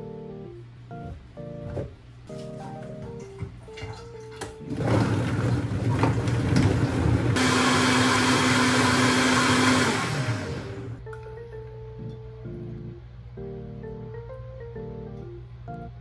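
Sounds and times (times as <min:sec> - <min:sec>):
blender motor blending: 0:04.7 - 0:11.0.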